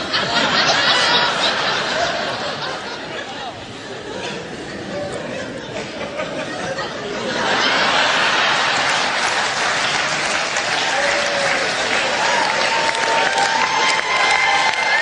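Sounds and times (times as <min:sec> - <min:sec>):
audience laughing: 0:00.0 - 0:12.6
audience applauding: 0:07.7 - 0:15.0.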